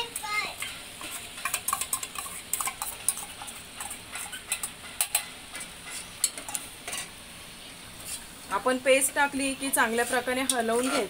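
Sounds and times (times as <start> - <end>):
gravy sizzling faintly: 0.0 - 11.0
metal spoon scraping steel bowl: 1.0 - 7.1, 9.6 - 11.0.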